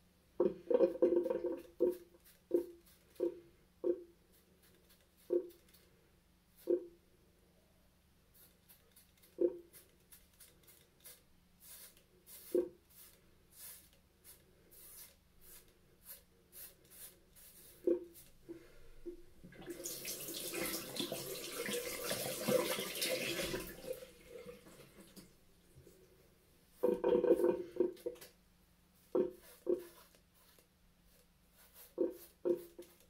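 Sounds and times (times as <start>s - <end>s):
razor scraping scalp: 4.3s - 5.8s, 8.4s - 18.4s, 29.0s - 33.0s.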